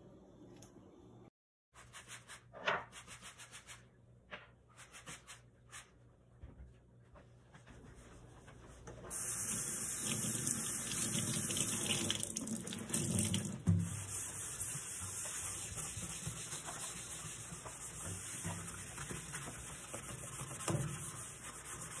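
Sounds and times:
cloth wiping wooden table: 13.8 - 22.0.

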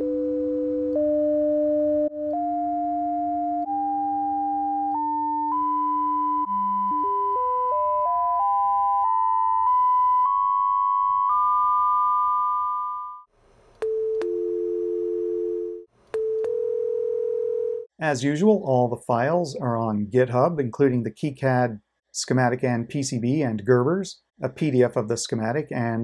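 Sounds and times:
telephone dial tone: 0.0 - 2.8, 3.4 - 10.4, 13.8 - 17.9
sine tone stepping upward: 0.2 - 13.3.

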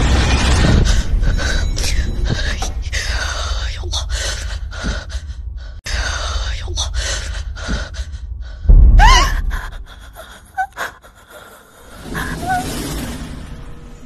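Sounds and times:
loud thud: 8.7 - 9.8.

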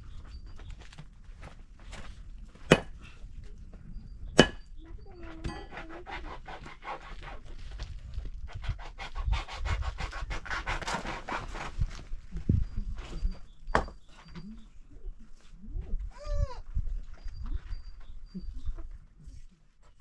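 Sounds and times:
sledgehammer clanging on stone: 2.7 - 3.0, 4.4 - 4.7.

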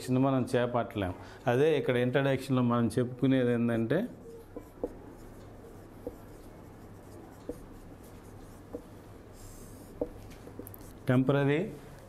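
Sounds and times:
marker scratching on whiteboard: 3.7 - 11.2.

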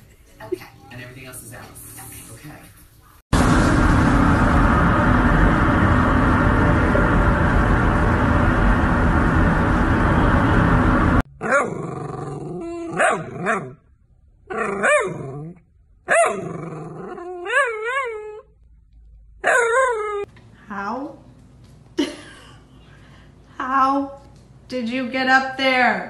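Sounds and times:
steady rushing noise: 3.4 - 11.2.

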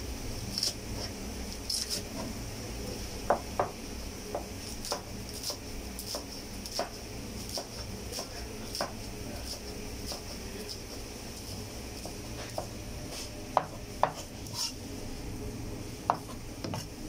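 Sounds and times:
steady low hum: 0.0 - 17.0
knife chopping on cutting board: 3.3 - 11.0, 12.0 - 14.7, 16.1 - 16.9.

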